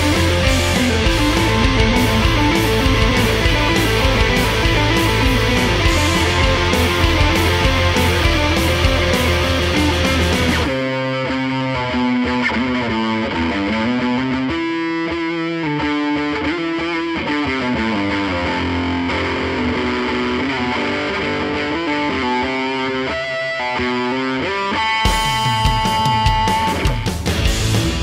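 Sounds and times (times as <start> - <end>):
distorted electric guitar music: 0.0 - 28.0.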